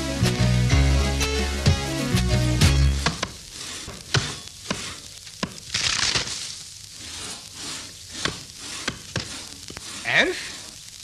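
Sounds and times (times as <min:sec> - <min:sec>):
wood chopping knocks: 0:03.0 - 0:04.8, 0:05.4 - 0:05.6.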